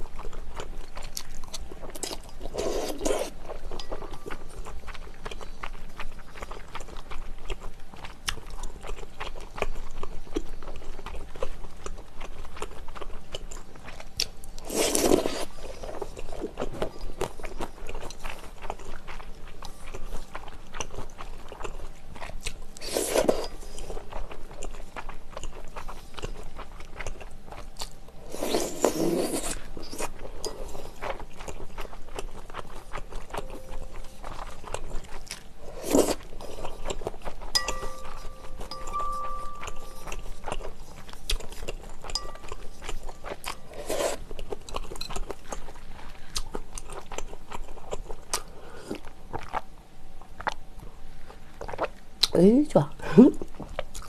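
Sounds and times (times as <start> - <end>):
wet chewing: 0.0 - 49.7.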